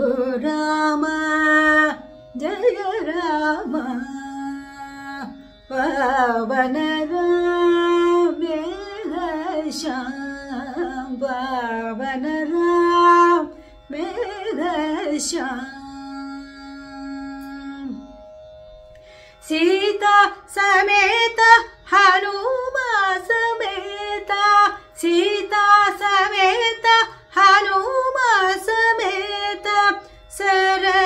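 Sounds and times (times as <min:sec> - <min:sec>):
woman singing devotional song: 0:00.0 - 0:18.0, 0:19.4 - 0:31.0
singer breathing: 0:13.5 - 0:13.9, 0:18.9 - 0:19.4, 0:30.0 - 0:30.3.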